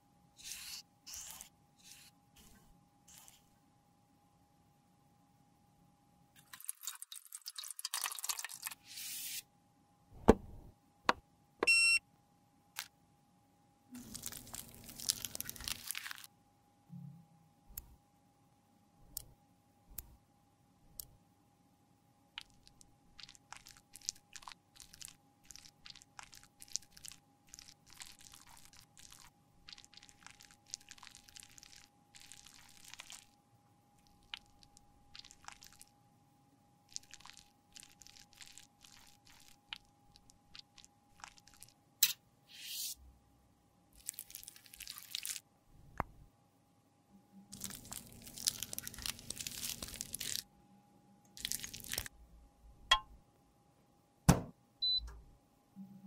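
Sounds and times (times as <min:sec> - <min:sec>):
faint steady hum: 0:00.0 - 0:56.0.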